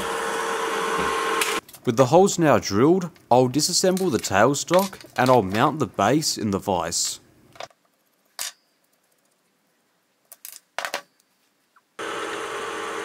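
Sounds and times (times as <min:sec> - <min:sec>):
milling machine humming: 0:00.0 - 0:01.6, 0:12.0 - 0:13.0
metallic clicks of steel parts: 0:03.9 - 0:05.6, 0:07.0 - 0:09.3.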